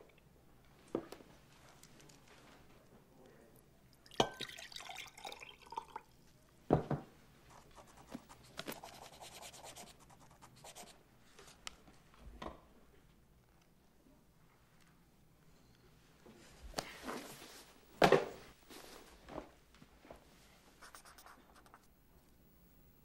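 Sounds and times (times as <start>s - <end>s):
liquid pouring into a glass: 4.0s - 6.2s.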